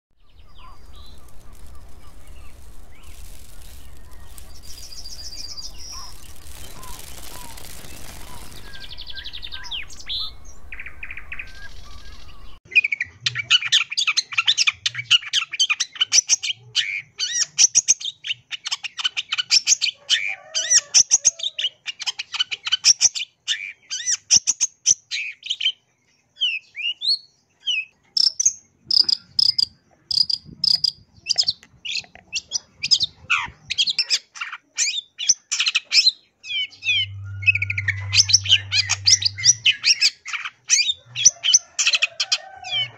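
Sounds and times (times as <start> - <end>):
shrike singing chattering song: 0.2 - 15.2, 28.2 - 34.2, 34.9 - 42.9.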